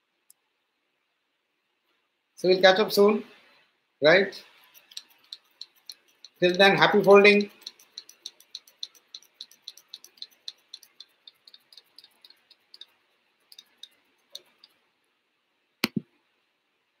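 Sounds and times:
paper wings clicking: 0:04.5 - 0:14.8.

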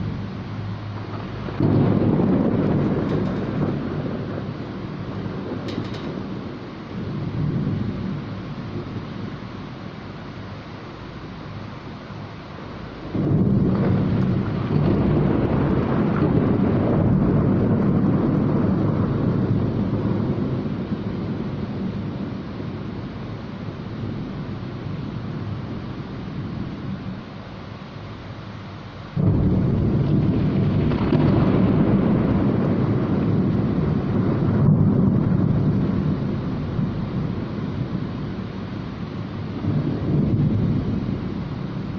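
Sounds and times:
heavy rain hissing: 0:00.0 - 0:41.9
thunder rumbling: 0:00.0 - 0:41.9.

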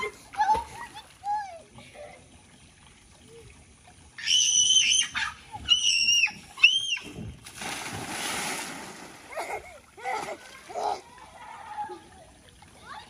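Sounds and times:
splash into water: 0:06.6 - 0:11.0.

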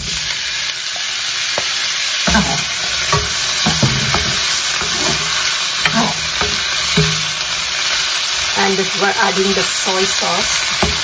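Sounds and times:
food sizzling in oil: 0:00.0 - 0:11.0
wooden spoon scraping a pan: 0:02.3 - 0:11.0.

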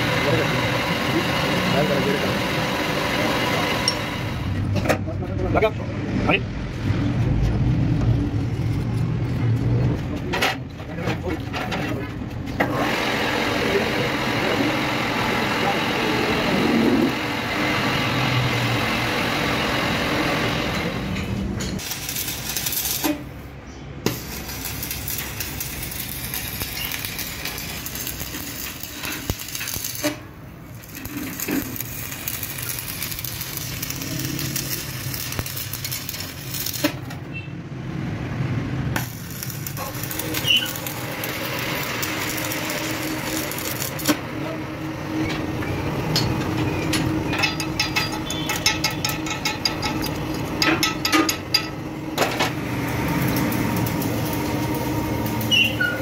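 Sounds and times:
steady mechanical noise: 0:00.0 - 0:56.0
metallic clinks and knocks: 0:46.1 - 0:51.8.

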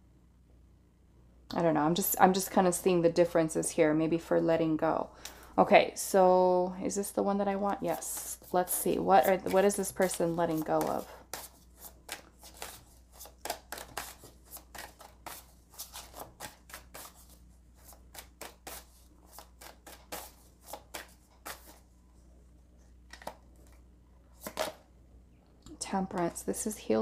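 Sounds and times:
cards being shuffled: 0:07.9 - 0:21.8, 0:23.1 - 0:23.8, 0:24.4 - 0:24.8.

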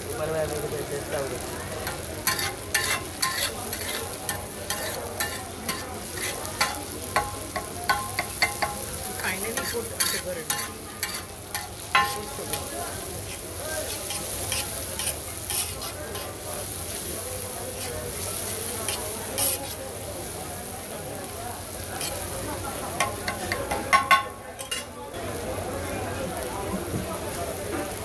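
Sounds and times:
vegetables sizzling in oil: 0:00.0 - 0:28.0
metal spatula striking griddle: 0:01.8 - 0:16.5, 0:17.8 - 0:19.8, 0:22.9 - 0:25.0.

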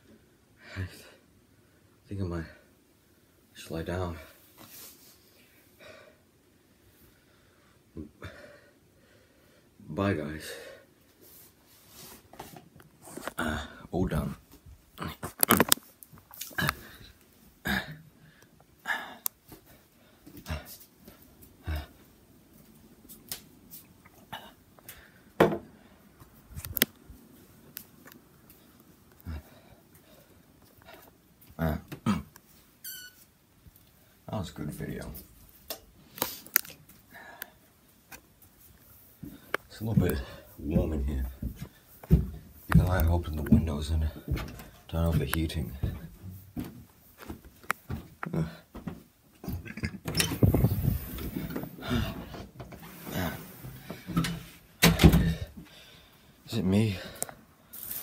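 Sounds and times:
camera handling taps and bumps: 0:15.2 - 0:15.9.

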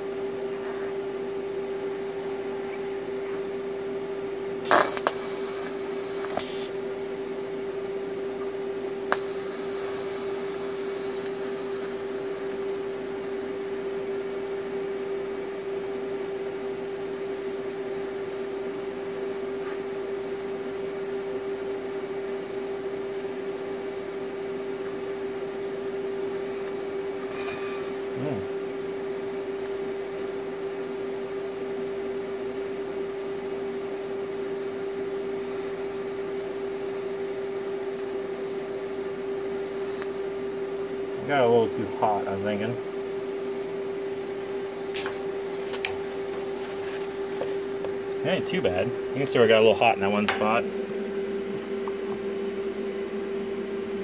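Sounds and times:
welder hum: 0:04.5 - 0:54.0
welding arc crackling and hissing: 0:04.6 - 0:06.8, 0:09.1 - 0:40.2, 0:43.7 - 0:48.7
welder click: 0:04.7 - 0:06.7, 0:09.1 - 0:10.1, 0:11.2 - 0:12.0.

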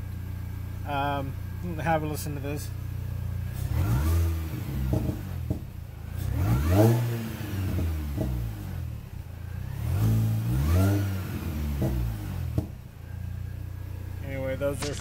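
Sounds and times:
car engine revving: 0:03.3 - 0:13.2
exhaust pops: 0:04.8 - 0:05.9, 0:11.8 - 0:12.8, 0:14.6 - 0:15.0.

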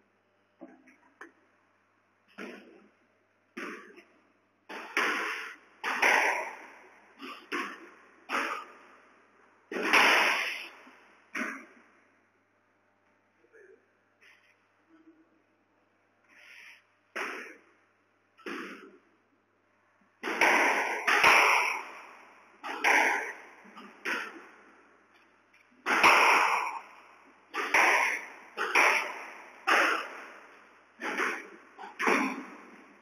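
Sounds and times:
ball striking walls: 0:02.3 - 0:02.9, 0:03.5 - 0:04.1, 0:04.7 - 0:09.0, 0:09.7 - 0:11.8, 0:18.4 - 0:19.1, 0:20.2 - 0:24.7, 0:25.8 - 0:33.0
squash racket hitting ball: 0:02.4 - 0:02.8, 0:03.6 - 0:04.0, 0:04.7 - 0:08.8, 0:09.7 - 0:11.7, 0:17.1 - 0:17.6, 0:18.4 - 0:19.0, 0:20.2 - 0:24.6, 0:25.8 - 0:33.0.

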